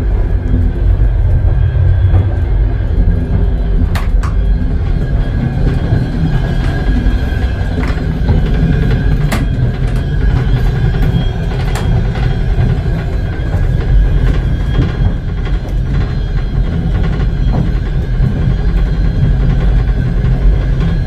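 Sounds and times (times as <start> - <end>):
train carriage rumble: 0.0 - 21.0
sharp clicks and knocks: 3.3 - 21.0.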